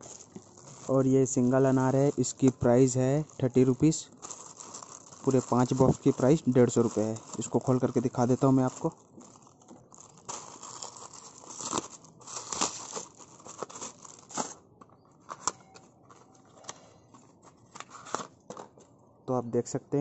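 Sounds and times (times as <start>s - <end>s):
packaging ripping: 0.0s - 2.9s, 3.5s - 14.6s
plastic and paper crinkling: 0.0s - 19.0s.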